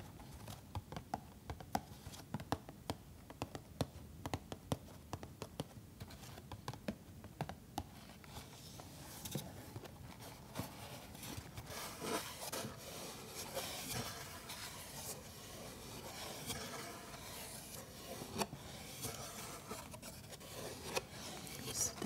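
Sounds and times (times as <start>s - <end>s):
scratching on cardboard: 7.9s - 22.0s.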